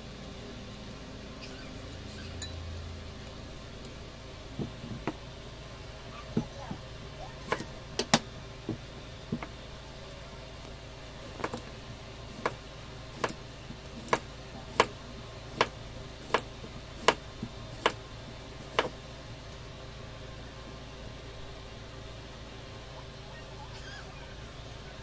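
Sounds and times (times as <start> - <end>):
knife slicing cucumber: 7.4 - 7.7, 11.2 - 11.6, 15.5 - 18.0.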